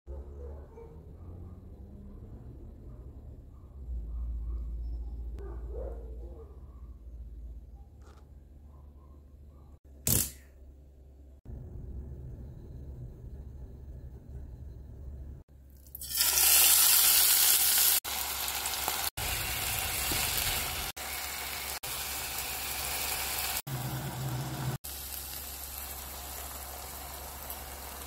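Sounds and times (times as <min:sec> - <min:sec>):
chicken sizzling in oil: 0:15.9 - 0:28.0.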